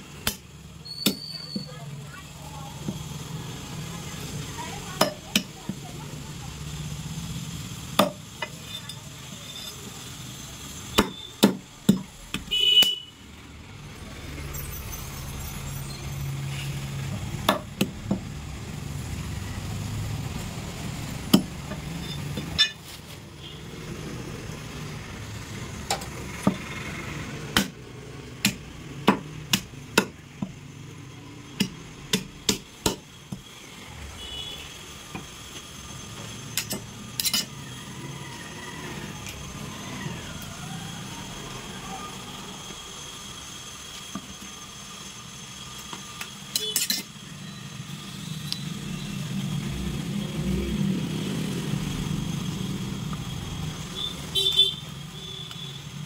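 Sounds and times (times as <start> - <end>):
cleaver chopping on a block: 5.0 - 5.6, 8.0 - 8.2, 11.0 - 13.0, 17.4 - 18.2, 27.5 - 27.8, 28.4 - 30.6, 31.6 - 33.0.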